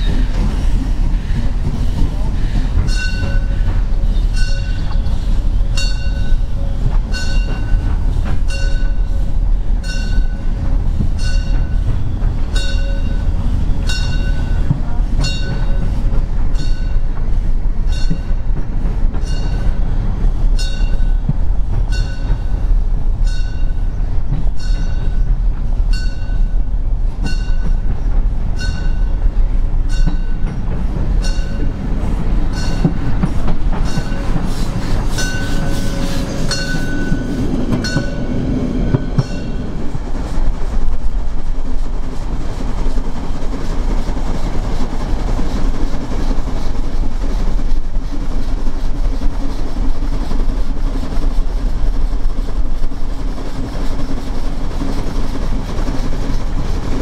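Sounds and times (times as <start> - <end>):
steam hissing: 0.0 - 21.7, 30.5 - 57.0
steam train rumble: 0.0 - 57.0
locomotive bell ringing: 2.8 - 9.2, 9.8 - 10.6, 11.2 - 17.1, 17.9 - 18.5, 19.2 - 19.8, 20.6 - 21.2, 21.9 - 22.6, 23.2 - 25.3, 25.9 - 27.8, 28.5 - 29.2, 29.9 - 30.5, 31.2 - 31.8, 32.5 - 33.0, 33.8 - 34.5, 35.1 - 39.7.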